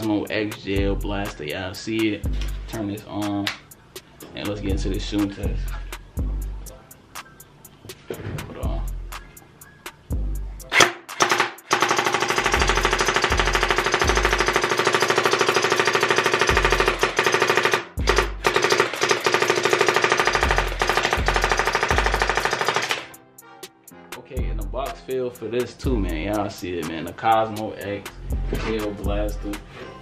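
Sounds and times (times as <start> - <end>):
gel blaster firing: 10.7 - 23.1.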